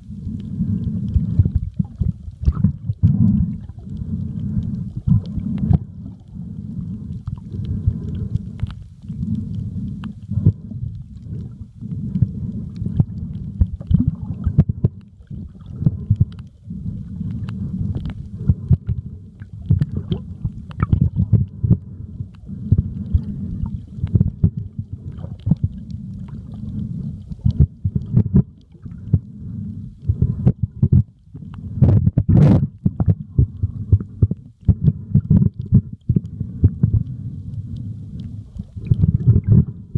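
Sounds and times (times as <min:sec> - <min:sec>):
muffled underwater water rumble: 0:00.0 - 0:39.9
sharp clicks and crackles: 0:07.1 - 0:16.6, 0:17.2 - 0:29.2.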